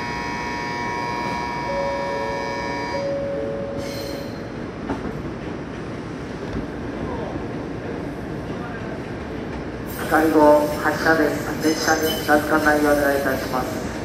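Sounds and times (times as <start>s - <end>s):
platform departure bell ringing: 0.0s - 4.8s
train hum: 0.0s - 14.0s.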